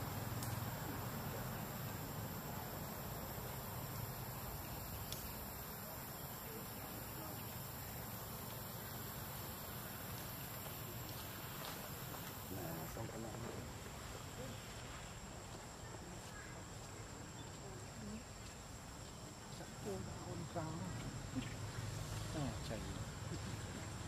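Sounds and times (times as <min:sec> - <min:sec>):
insects droning: 0:00.0 - 0:24.0
faint clicks: 0:00.4 - 0:00.6, 0:04.9 - 0:05.4.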